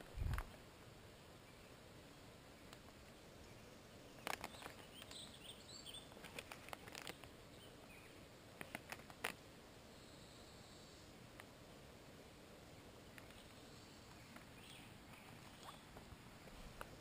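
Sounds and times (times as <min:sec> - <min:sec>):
faint bird chirps: 0:01.4 - 0:08.8, 0:09.9 - 0:11.2, 0:13.0 - 0:16.6.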